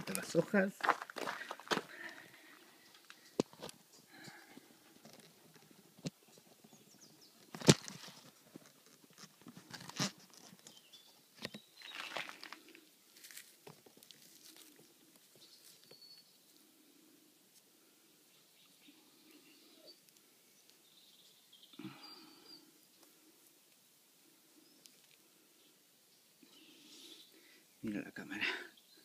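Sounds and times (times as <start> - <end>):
dry leaves rustling and crunching: 11.8 - 15.9.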